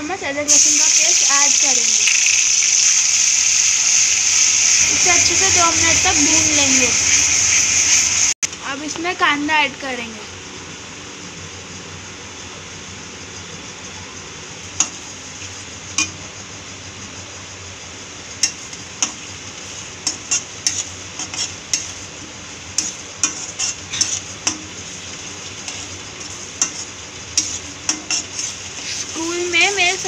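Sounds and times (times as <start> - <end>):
onions sizzling in oil: 0.0 - 10.6, 11.2 - 30.0
metal spatula scraping pan: 20.0 - 22.0, 22.8 - 24.8, 26.6 - 30.0.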